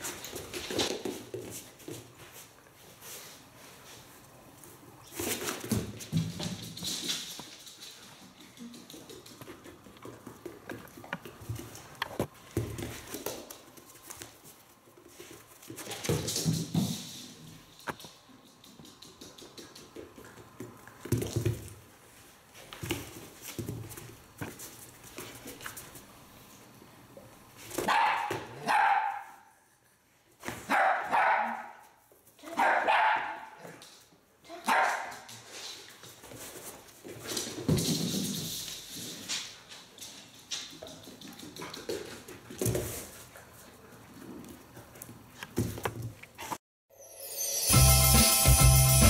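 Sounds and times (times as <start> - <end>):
dog barking in play: 27.8 - 29.5, 30.6 - 33.8, 34.5 - 35.3.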